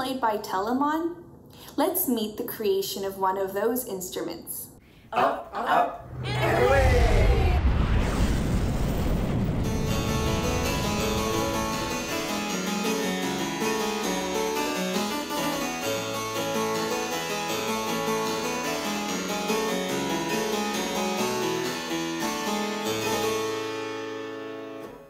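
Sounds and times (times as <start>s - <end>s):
harpsichord playing: 10.0s - 24.9s.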